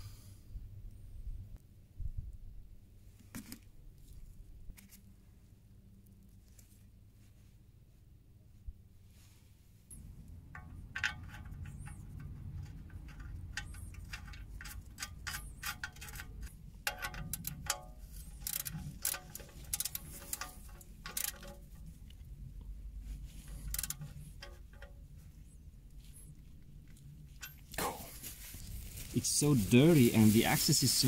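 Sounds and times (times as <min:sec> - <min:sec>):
low steady rumble: 0:00.0 - 0:31.0
ratchet wrench clicking: 0:10.5 - 0:21.7, 0:23.4 - 0:24.9.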